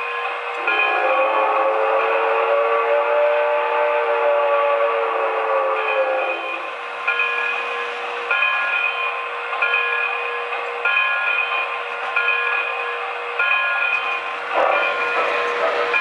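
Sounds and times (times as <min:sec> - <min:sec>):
locomotive bell ringing: 0:00.0 - 0:05.0, 0:05.6 - 0:16.0.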